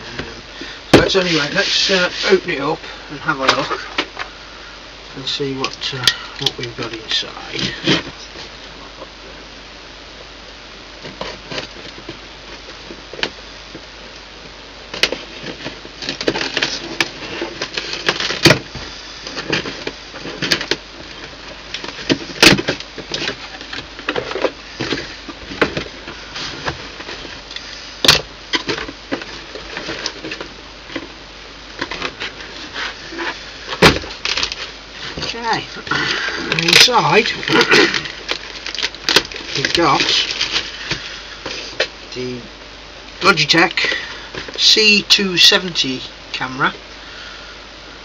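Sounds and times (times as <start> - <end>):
cardboard scraping and knocking: 0.0 - 2.5, 15.0 - 27.4, 31.8 - 35.7
packing rustling: 14.9 - 31.2, 31.8 - 42.0.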